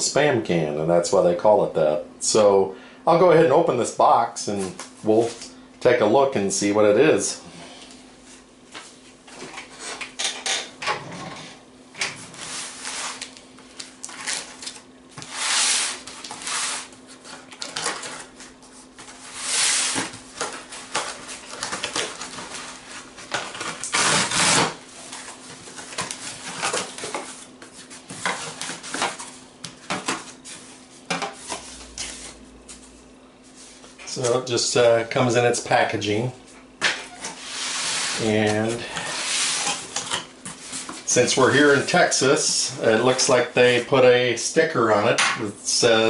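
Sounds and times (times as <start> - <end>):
cardboard tearing: 23.5 - 24.8
knife cutting cardboard box: 23.8 - 24.8.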